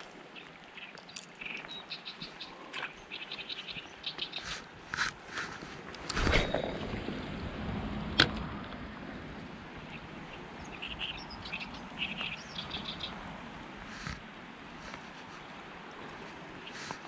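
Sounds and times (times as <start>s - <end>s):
small bird chirping: 0.4s - 4.6s, 9.8s - 13.2s.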